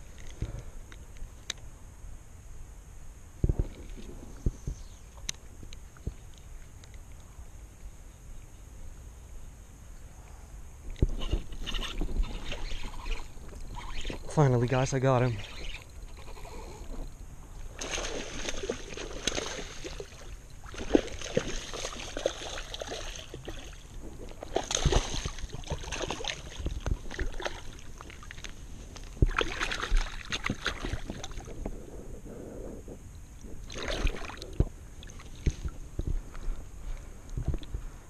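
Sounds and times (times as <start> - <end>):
fish splashing in water: 17.8 - 28.5, 29.2 - 31.5, 33.7 - 35.7.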